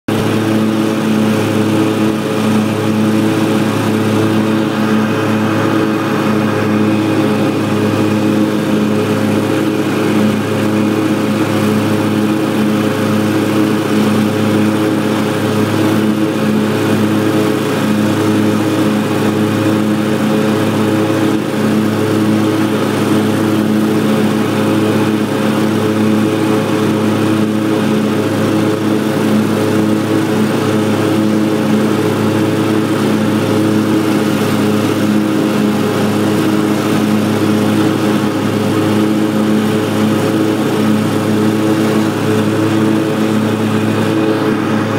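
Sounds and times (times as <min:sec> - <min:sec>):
lawn mower engine running: 0:00.1 - 0:44.9.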